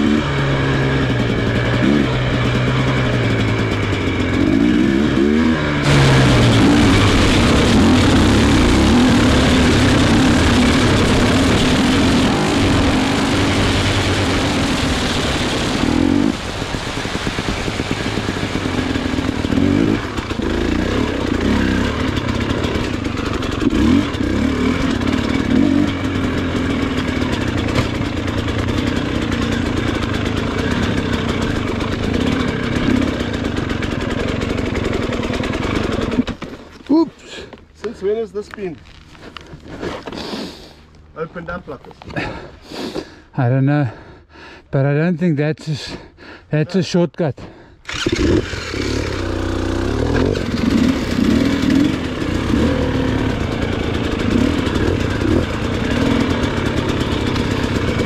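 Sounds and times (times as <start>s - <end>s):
vehicle engine revving: 0.0s - 36.4s, 47.8s - 58.0s
loud rushing noise: 5.8s - 21.2s.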